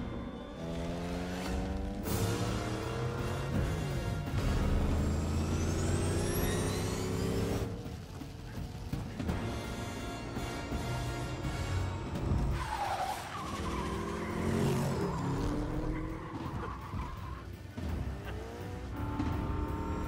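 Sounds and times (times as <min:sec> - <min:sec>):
car engines revving: 0:00.0 - 0:20.0
music: 0:00.0 - 0:20.0
tyre squeal: 0:05.1 - 0:07.5.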